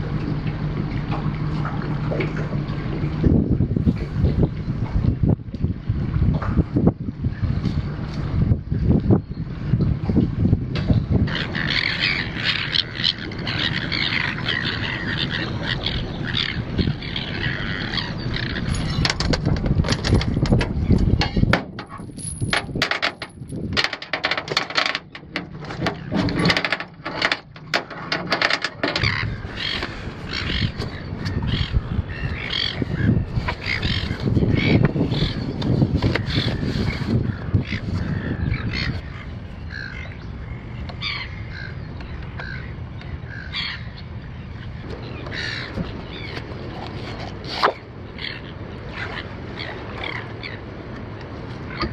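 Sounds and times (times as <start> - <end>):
birds calling: 10.9 - 51.9
metal chain clinking and rattling: 18.6 - 19.2, 21.8 - 25.1.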